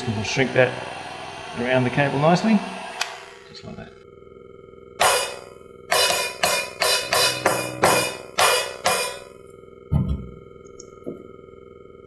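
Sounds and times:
electronic cymbal pad hits: 0:05.0 - 0:09.4.

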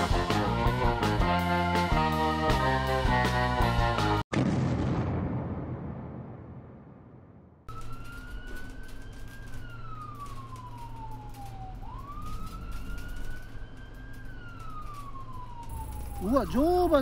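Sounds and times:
police siren wailing: 0:07.7 - 0:17.0.

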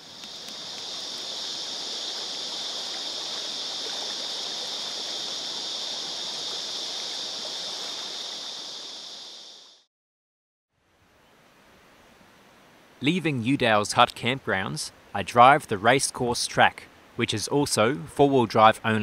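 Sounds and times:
creek bubbling over rocks: 0:00.0 - 0:09.0
cicadas droning: 0:00.0 - 0:09.9, 0:13.1 - 0:19.0.

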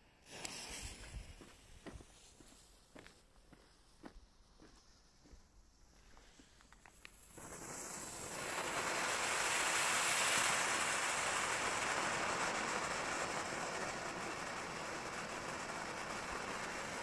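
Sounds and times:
firework fountain hissing sparks: 0:00.2 - 0:02.8, 0:04.3 - 0:17.0.

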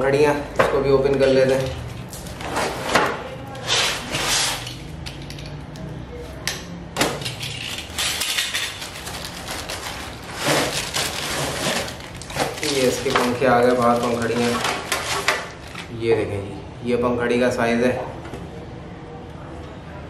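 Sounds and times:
box cutter slicing cardboard: 0:10.3 - 0:12.7.

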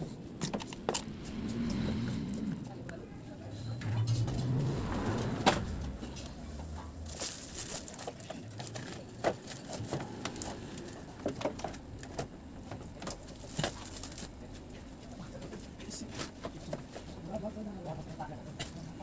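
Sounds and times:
low hum: 0:00.0 - 0:07.8.

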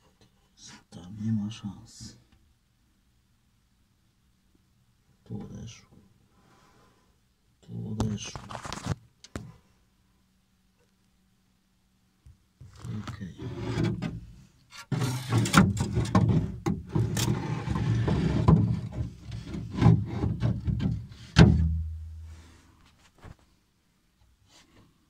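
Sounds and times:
phone scraping inside kayak hull: 0:13.3 - 0:21.3.

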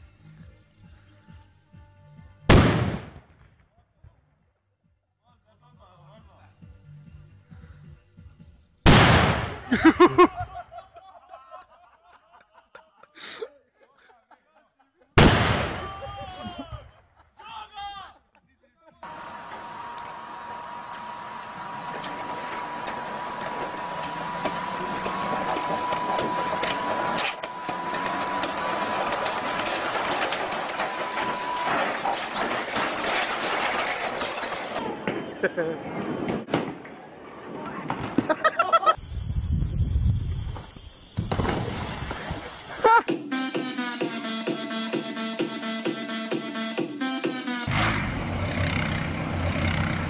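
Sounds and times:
cannon bang: 0:02.5 - 0:03.7, 0:08.9 - 0:09.7, 0:15.2 - 0:16.2
sharp crack: 0:02.5 - 0:03.7, 0:08.9 - 0:09.7, 0:15.2 - 0:16.1
tracked vehicle engine running: 0:19.0 - 0:34.8, 0:47.5 - 0:50.0
steel tracks clattering: 0:19.1 - 0:34.8
high whine: 0:39.0 - 0:43.0.

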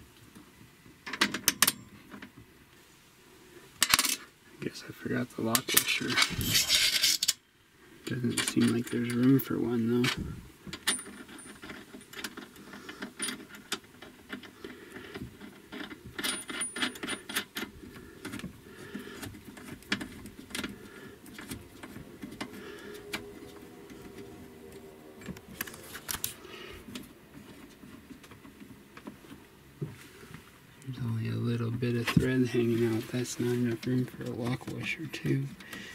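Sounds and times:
small metal clicks and rattles: 0:08.0 - 0:09.4, 0:10.0 - 0:29.2.

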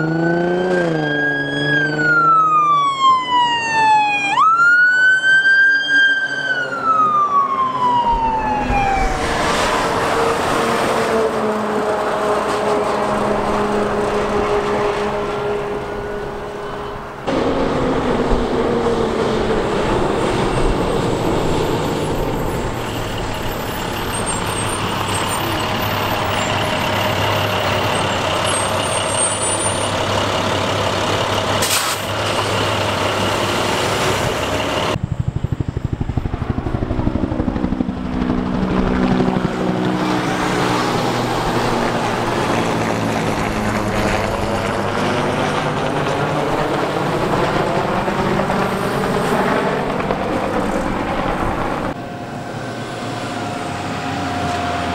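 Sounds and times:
diesel fire trucks passing: 0:00.0 - 0:54.9
pulsing diesel rumble: 0:12.8 - 0:54.9
air brakes hissing: 0:31.6 - 0:32.2.

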